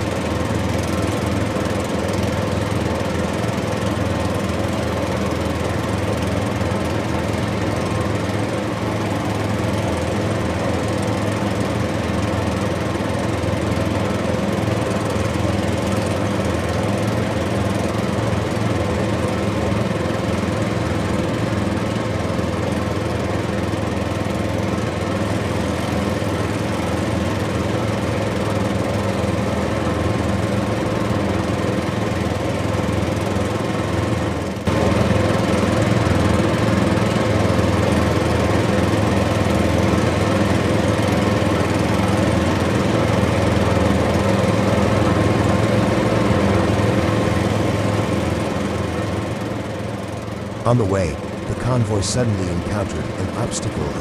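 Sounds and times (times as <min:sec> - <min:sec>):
diesel engine droning: 0:50.1 - 0:54.0.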